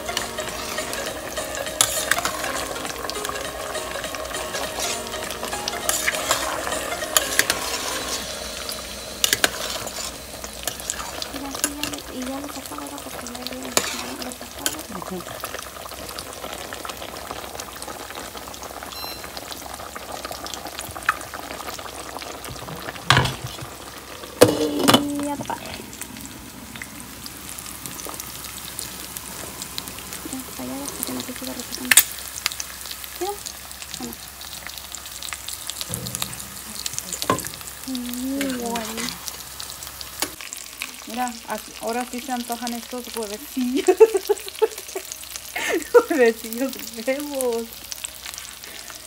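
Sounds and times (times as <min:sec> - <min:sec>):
eggs sizzling in hot oil: 0:00.0 - 0:49.0.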